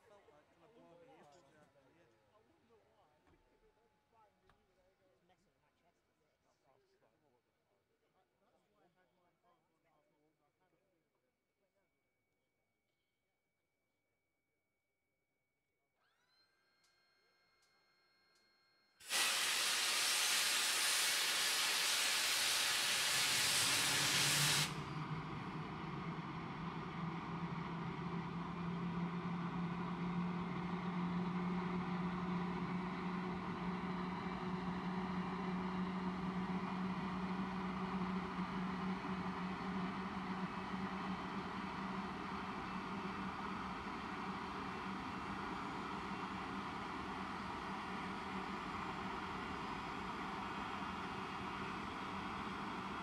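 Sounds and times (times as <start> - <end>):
loud starter hiss: 19.0 - 25.0
jet engine running: 19.0 - 53.0.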